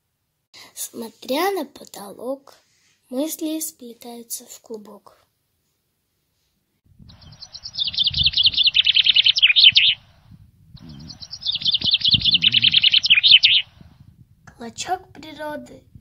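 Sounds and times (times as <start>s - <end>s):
songbird trilling: 7.1s - 13.9s
faint low rumble: 10.0s - 12.9s, 13.6s - 16.0s.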